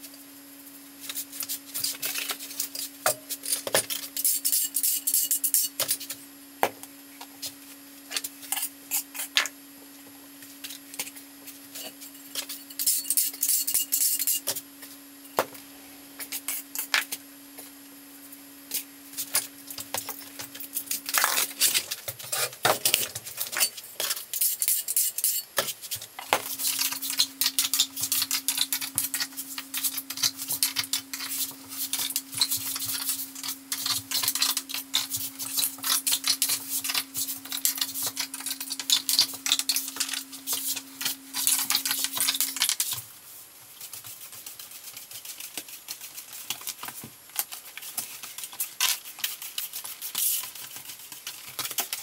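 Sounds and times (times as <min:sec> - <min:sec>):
steady low hum: 0:00.0 - 0:43.8
tile tools clicking and scraping: 0:11.8 - 0:14.6, 0:18.7 - 0:43.0.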